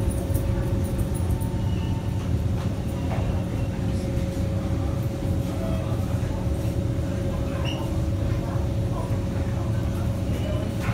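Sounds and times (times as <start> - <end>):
metro train rumble from inside: 0.0 - 10.9.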